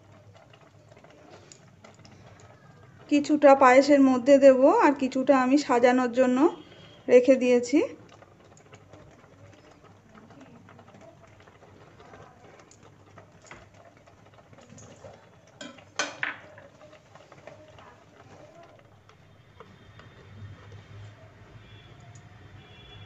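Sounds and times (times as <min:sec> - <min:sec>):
utensils clicking and knocking: 0:07.9 - 0:22.3.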